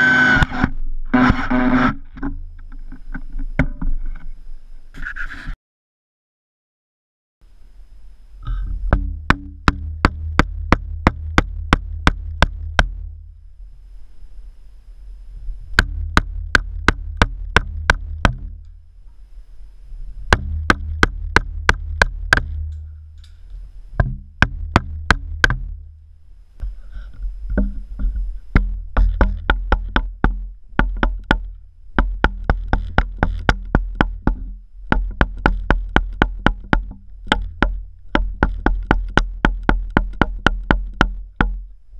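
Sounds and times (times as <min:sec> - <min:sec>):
low rumble: 0:07.9 - 0:41.9
mallet striking chisel into wood: 0:08.9 - 0:13.0, 0:15.8 - 0:18.7, 0:20.3 - 0:22.8, 0:24.0 - 0:25.8, 0:28.5 - 0:41.6.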